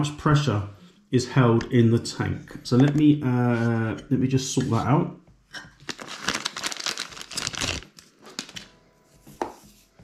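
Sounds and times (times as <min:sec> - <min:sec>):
plastic crinkling and rustling: 0:05.8 - 0:08.8.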